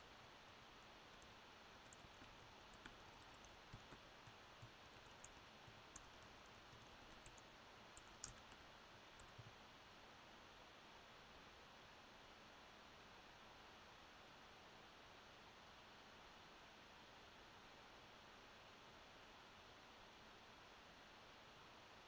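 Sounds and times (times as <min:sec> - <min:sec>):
faint room hiss: 0:00.0 - 0:22.0
computer keyboard clicks: 0:01.2 - 0:08.6, 0:09.2 - 0:09.5.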